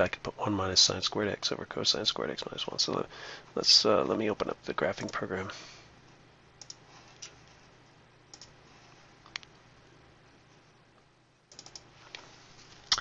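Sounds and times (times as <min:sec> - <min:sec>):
faint room hiss: 0:00.0 - 0:13.0
computer mouse clicking: 0:06.6 - 0:07.4, 0:08.3 - 0:08.6, 0:11.5 - 0:12.2.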